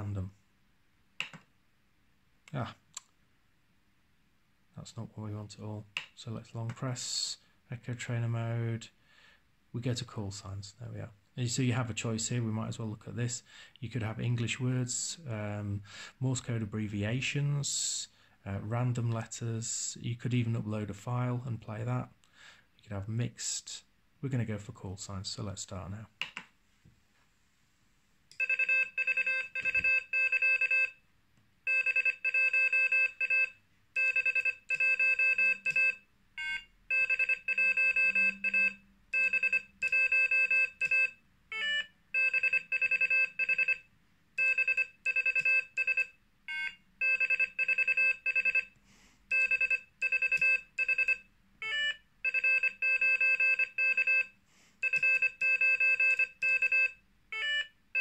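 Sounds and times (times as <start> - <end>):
morse code beeps: 28.4 - 30.9, 31.7 - 43.8, 44.4 - 48.7, 49.3 - 58.0
signal tone beeps: 31.7 - 41.1.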